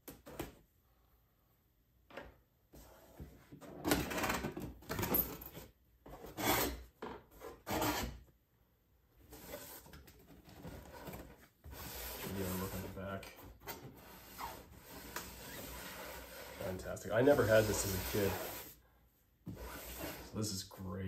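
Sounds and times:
cardboard box scraping on cardboard: 13.9s - 18.8s.

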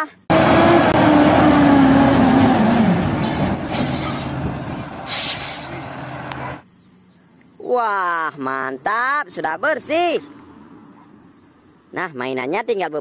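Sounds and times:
garbage truck driving past: 0.3s - 6.6s
brake squeal: 3.0s - 6.6s
air brake hiss: 3.7s - 5.7s.

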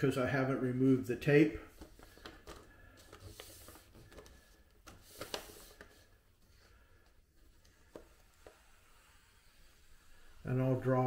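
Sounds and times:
paper rustling: 1.6s - 10.3s
pencil scratching on paper: 8.0s - 10.5s.

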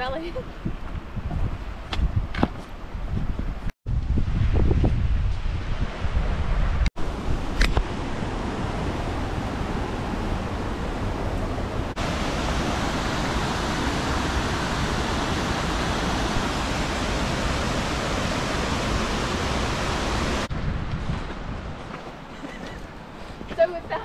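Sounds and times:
stream rushing over boulders: 7.0s - 20.5s.

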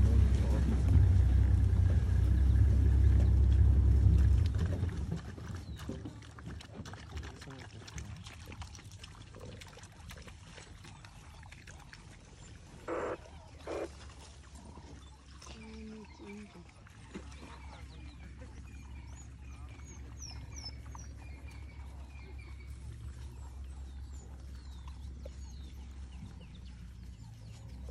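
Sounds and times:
low rumble: 0.0s - 6.1s
dogs lapping water: 0.0s - 27.9s
dog calls: 12.8s - 14.0s.

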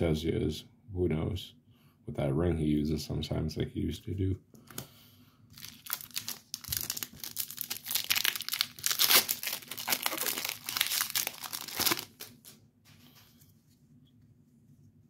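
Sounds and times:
foil wrapper crinkling and tearing: 5.5s - 12.6s.

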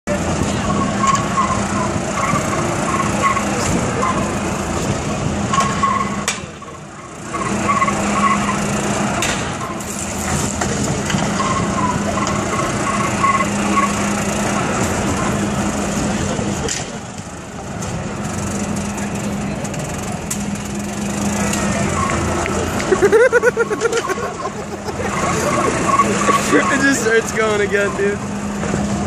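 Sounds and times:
golf cart motor humming: 0.1s - 29.0s
tire squeals on pavement: 0.3s - 4.5s, 5.5s - 15.5s, 20.9s - 28.6s.

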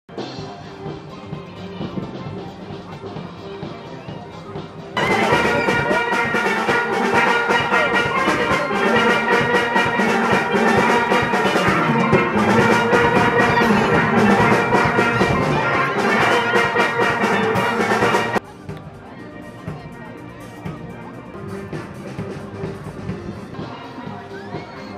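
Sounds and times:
steel band playing: 4.8s - 23.9s.

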